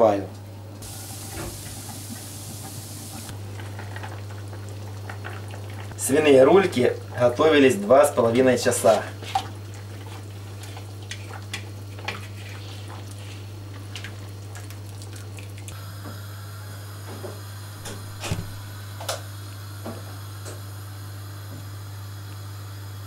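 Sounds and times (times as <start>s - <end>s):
broth dripping: 0.7s - 7.4s.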